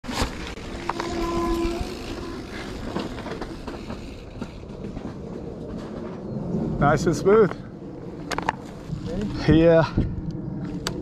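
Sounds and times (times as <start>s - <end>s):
bike rattling and clicking: 0.0s - 6.2s, 8.2s - 9.8s
wind on microphone: 0.6s - 11.0s.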